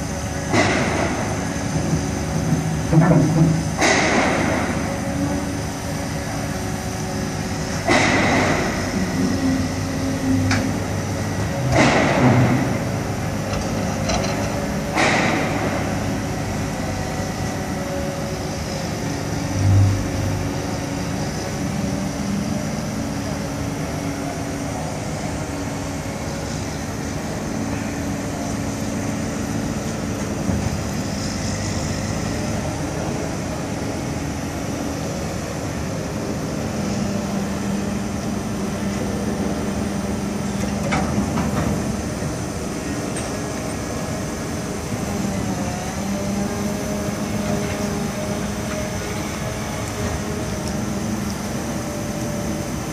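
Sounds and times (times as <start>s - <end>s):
diesel crane engine running: 0.0s - 52.9s.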